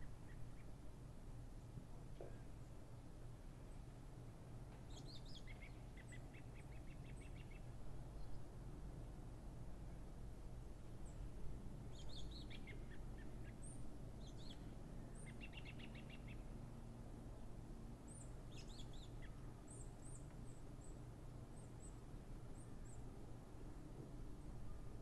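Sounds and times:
low steady background noise: 0.0s - 25.0s
small songbirds singing: 4.9s - 8.5s, 11.9s - 16.6s, 18.1s - 22.0s.

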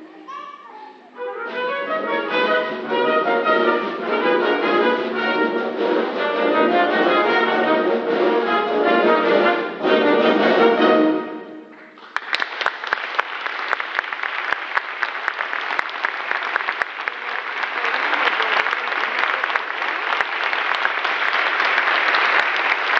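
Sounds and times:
audience applause: 11.7s - 22.9s.

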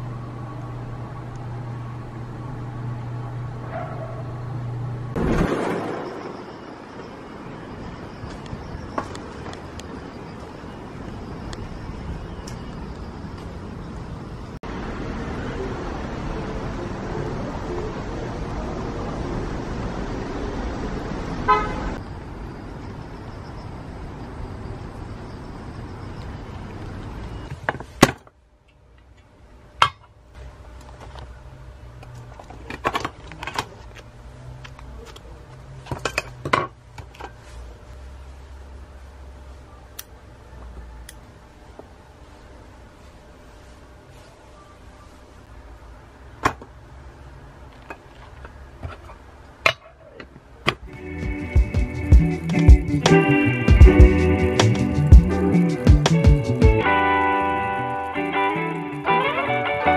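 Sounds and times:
road traffic noise: 0.0s - 59.9s.

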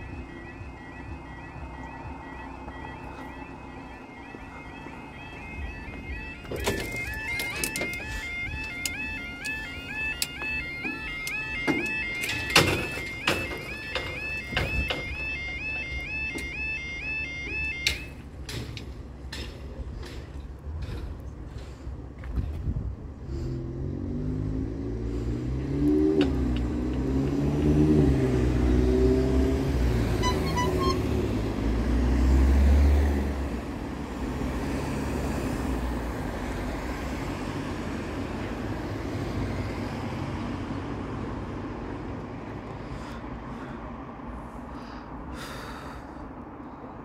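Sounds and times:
traffic hum: 0.0s - 47.0s
car passing with low rumble: 19.8s - 47.0s
car engine note rising and falling: 23.3s - 42.6s.

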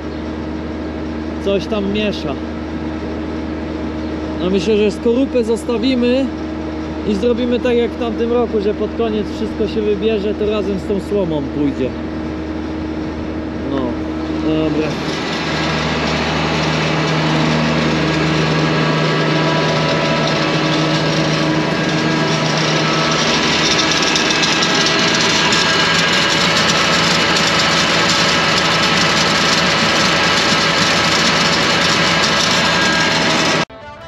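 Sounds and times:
tractor engine under load: 13.8s - 33.7s.

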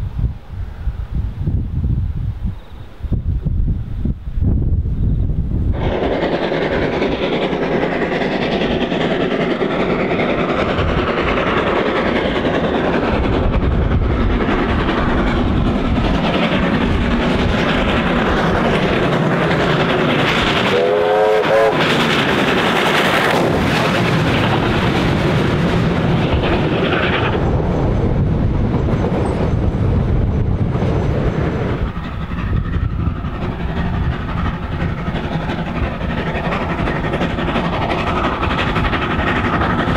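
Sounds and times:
steam locomotive exhaust beats: 0.0s - 39.9s
rising train whistle: 20.6s - 22.0s.

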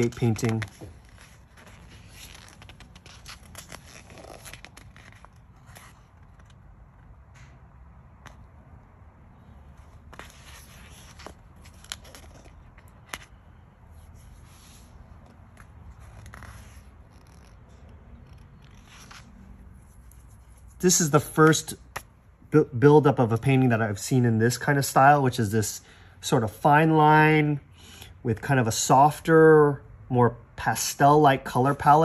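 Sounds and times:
book pages rustling: 0.0s - 7.5s, 9.6s - 22.2s.

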